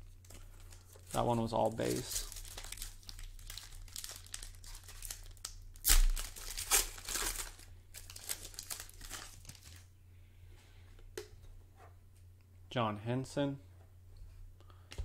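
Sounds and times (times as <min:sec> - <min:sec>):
foil wrapper crinkling and tearing: 0:00.3 - 0:09.9.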